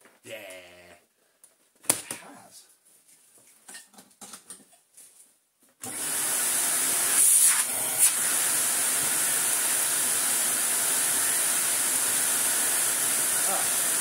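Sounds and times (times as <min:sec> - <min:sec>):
vacuum cleaner running: 0:05.8 - 0:14.0.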